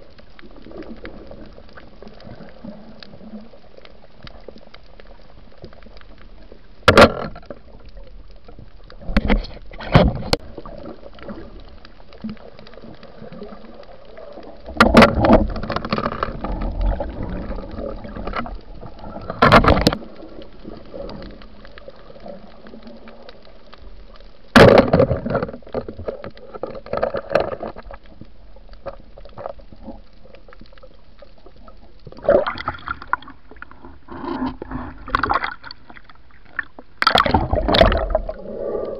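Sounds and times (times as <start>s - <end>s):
muffled underwater water wash: 0.0s - 38.9s
bubbling and splashing bursts: 32.1s - 38.9s.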